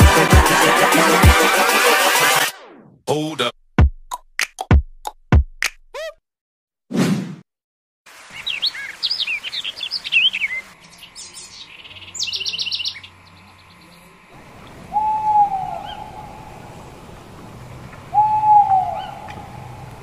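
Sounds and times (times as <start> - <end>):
birds chirping: 8.2 - 20.0
bird hooting call: 14.4 - 17.2, 18.0 - 20.0.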